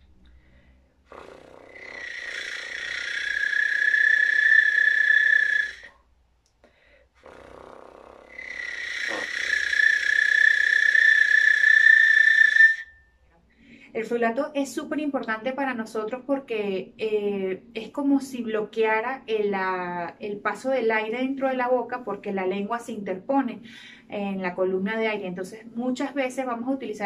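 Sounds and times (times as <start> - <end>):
piccolo flutter-tongued notes: 8.4 - 13.0.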